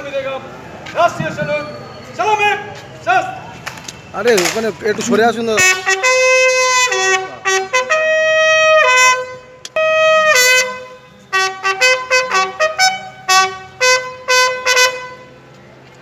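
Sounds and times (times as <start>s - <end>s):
brass bugle call: 5.5s - 15.4s.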